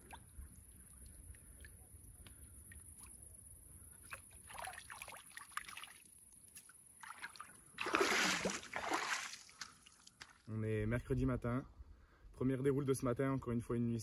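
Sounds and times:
water dripping and sloshing: 0.0s - 3.2s, 3.9s - 10.3s
fish splashing: 7.0s - 10.0s.

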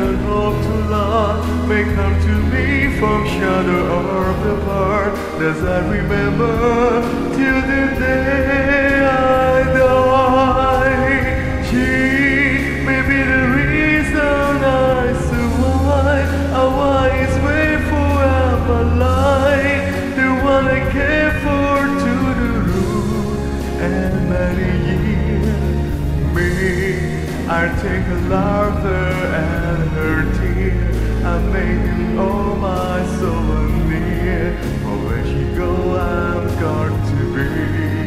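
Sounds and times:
deep bass note: 0.0s - 38.0s
slow ballad instrumental: 0.0s - 38.0s.

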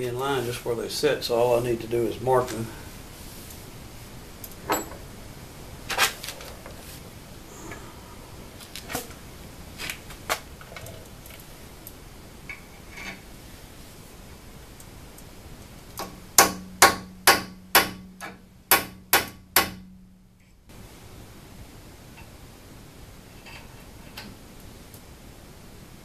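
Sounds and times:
hammer striking metal punch: 16.0s - 20.2s.

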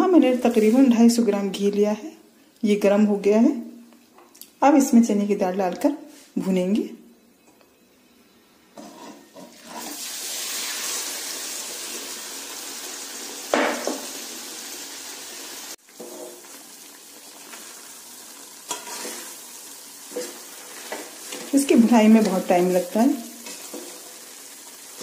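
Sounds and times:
paste sizzling in hot ghee: 9.7s - 25.0s
spatula scraping metal pan: 18.7s - 19.3s.

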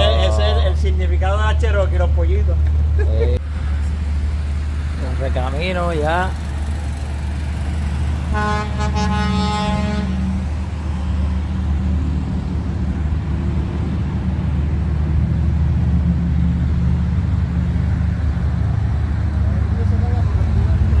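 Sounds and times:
low rumble of vehicles: 0.0s - 21.0s
vehicle horn: 8.3s - 10.5s.

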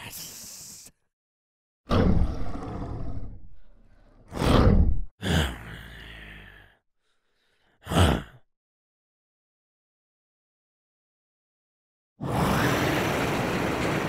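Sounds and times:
monster growls and roars: 1.9s - 6.8s, 7.8s - 8.4s, 12.2s - 14.0s.

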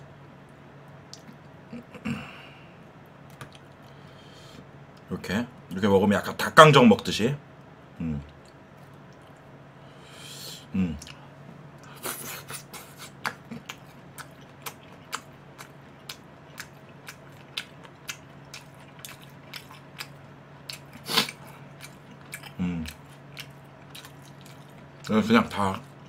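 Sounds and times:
person chewing crunchy food: 11.8s - 26.0s.

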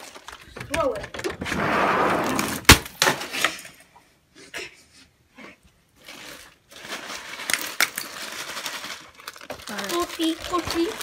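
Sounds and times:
ice pieces clicking: 7.4s - 11.0s.

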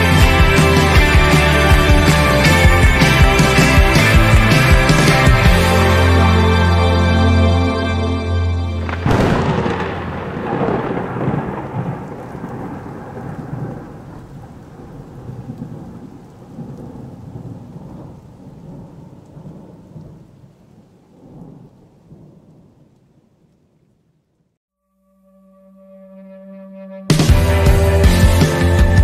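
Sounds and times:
background music: 0.0s - 10.3s, 25.0s - 29.0s
thunder rumble: 8.3s - 24.6s.

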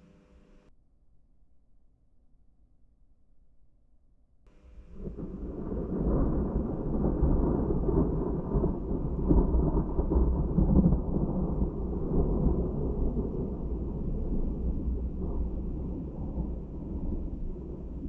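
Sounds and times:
thunder rumbling: 4.5s - 18.0s.

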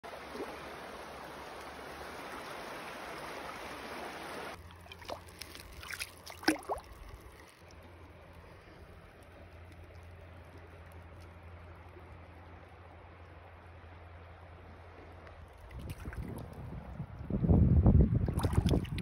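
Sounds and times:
creek water rushing: 0.0s - 8.5s.

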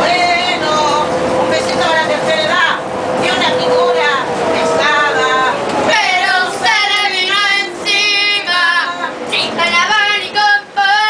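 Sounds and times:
woman singing unaccompanied: 3.4s - 11.0s.

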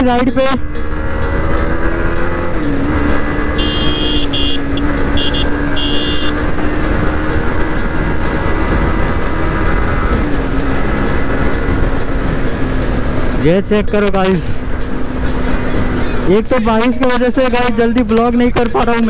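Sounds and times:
motorcycle engine running: 0.0s - 17.3s
high horn beeps: 3.5s - 6.8s.

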